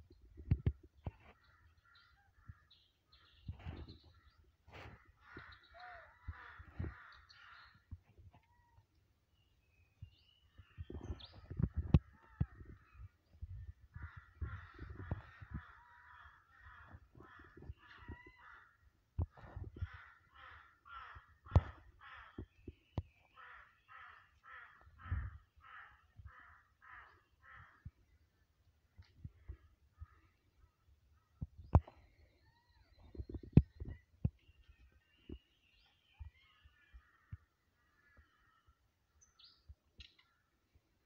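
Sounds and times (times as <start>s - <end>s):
crows cawing: 4.8s - 7.8s, 13.9s - 18.8s, 19.4s - 22.6s, 23.3s - 28.0s, 36.8s - 38.8s.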